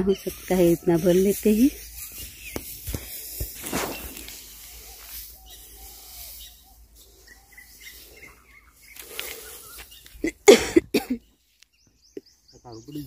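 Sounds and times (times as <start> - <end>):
cloth sack and straw rustling: 0.0 - 10.4
bird chirping: 0.0 - 13.0.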